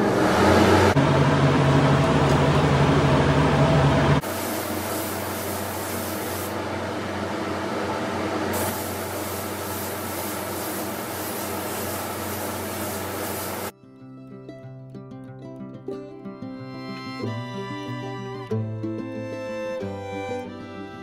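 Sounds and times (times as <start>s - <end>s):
paint spray gun hissing: 4.2s - 6.6s, 8.5s - 13.7s.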